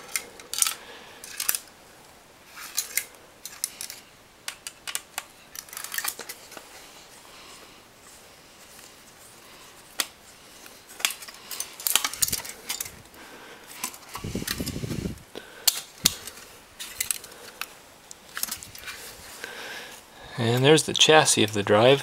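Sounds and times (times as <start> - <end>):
metal parts clicking and rattling: 0.0 - 1.7, 2.5 - 6.8, 10.9 - 13.1, 13.7 - 15.0, 15.6 - 19.1.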